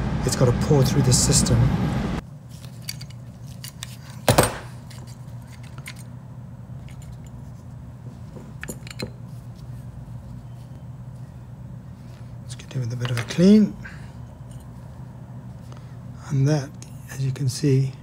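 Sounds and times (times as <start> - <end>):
steady low hum: 0.0 - 18.0
metal parts clatter: 2.5 - 6.1, 6.8 - 7.4, 8.3 - 9.3
small metal parts clinking: 2.5 - 6.2, 6.8 - 7.6, 8.2 - 9.6.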